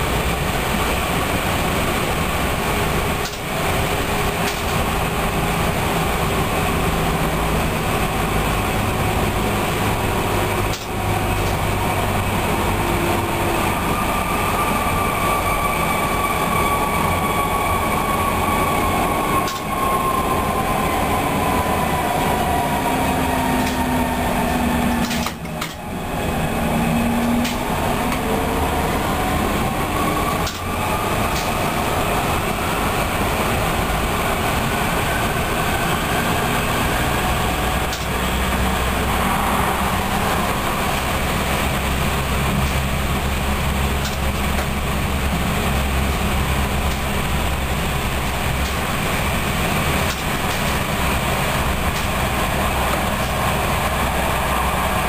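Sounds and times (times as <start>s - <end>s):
train wheels rumbling on rail: 0.0s - 55.0s
train motor whine: 2.2s - 55.0s.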